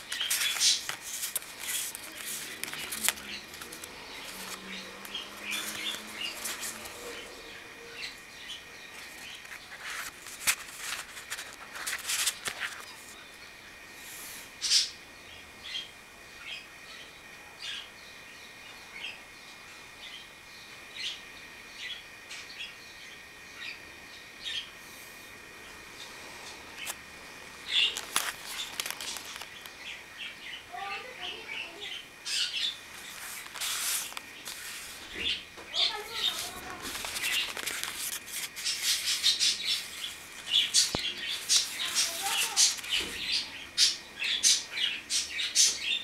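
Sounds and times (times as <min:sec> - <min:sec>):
paper pages rustling: 0:00.0 - 0:07.2, 0:09.0 - 0:13.2, 0:27.8 - 0:29.7, 0:32.9 - 0:43.1
birds chirping: 0:00.0 - 0:09.8, 0:25.5 - 0:46.0.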